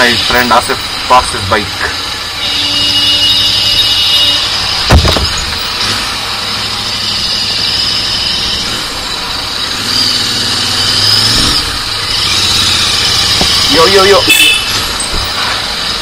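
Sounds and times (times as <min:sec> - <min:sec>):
motorcycle engine running: 0:01.9 - 0:16.0
sharp thump: 0:04.9 - 0:05.6.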